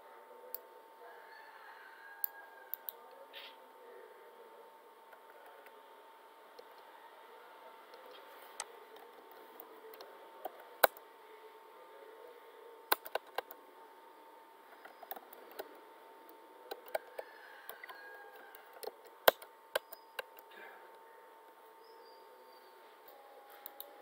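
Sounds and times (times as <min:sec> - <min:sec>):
faint electrical hum: 0:00.0 - 0:24.0
keyboard and mouse clicks: 0:12.9 - 0:13.6, 0:14.8 - 0:15.8, 0:16.7 - 0:20.5.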